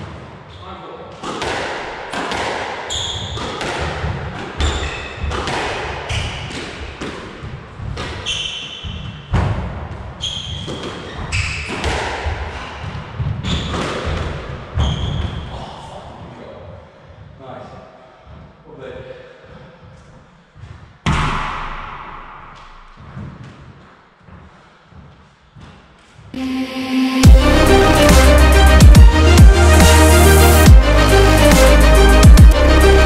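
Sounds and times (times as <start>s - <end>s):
squash ball hitting walls: 1.1s - 15.4s, 21.0s - 23.8s
shoes squeaking on court: 2.9s - 15.5s.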